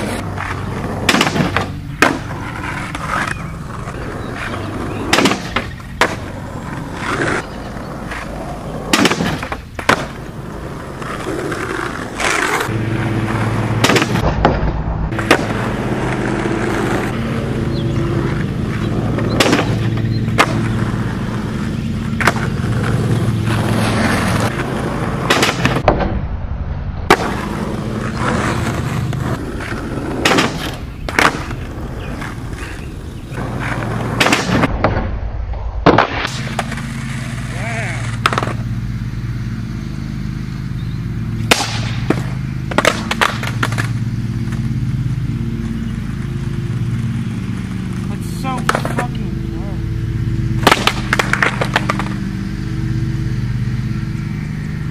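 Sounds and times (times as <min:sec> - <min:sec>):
skateboard clacking on ground: 0:00.0 - 0:12.7, 0:18.1 - 0:25.9, 0:27.1 - 0:34.7, 0:36.5 - 0:38.7, 0:41.5 - 0:44.7, 0:47.9 - 0:49.3, 0:50.6 - 0:52.2
skateboard wheels rolling on asphalt: 0:00.0 - 0:54.9.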